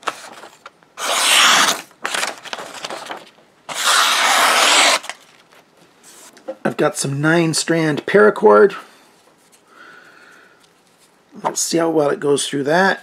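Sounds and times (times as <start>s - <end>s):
knife slicing paper: 0.1s - 5.2s.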